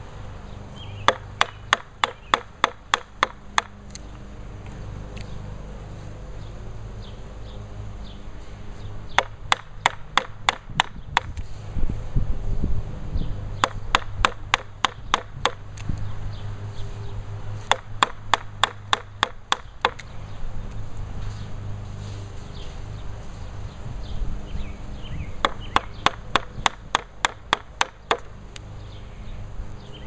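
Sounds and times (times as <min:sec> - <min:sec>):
mallet striking chisel: 0:01.1 - 0:03.7, 0:13.6 - 0:15.6, 0:17.7 - 0:20.0.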